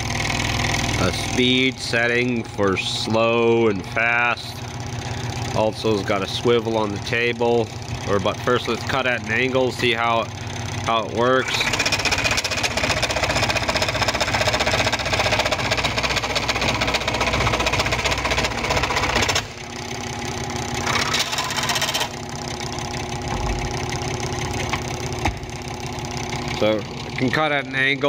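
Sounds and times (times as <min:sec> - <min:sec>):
scroll saw cutting wood: 0:10.6 - 0:19.9, 0:20.6 - 0:22.6.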